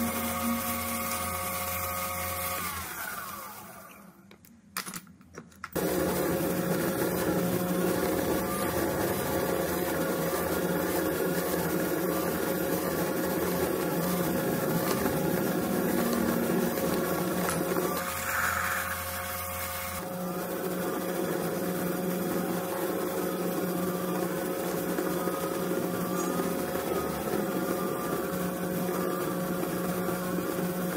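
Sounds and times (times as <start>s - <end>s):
metal lathe drilling hum: 5.8s - 20.3s.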